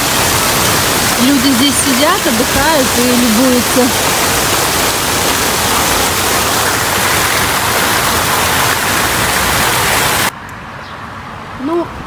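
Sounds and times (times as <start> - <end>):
fountain water splashing: 0.0 - 10.3.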